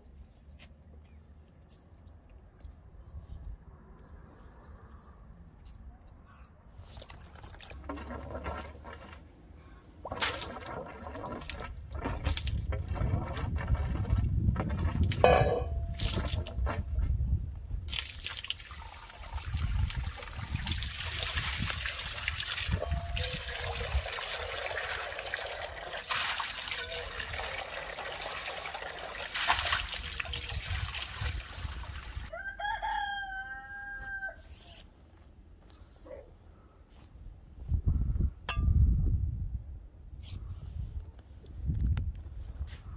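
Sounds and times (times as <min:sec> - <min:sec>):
hose water splashing into a bowl: 0:10.0 - 0:16.9, 0:17.8 - 0:32.3
rooster crowing: 0:32.3 - 0:34.5.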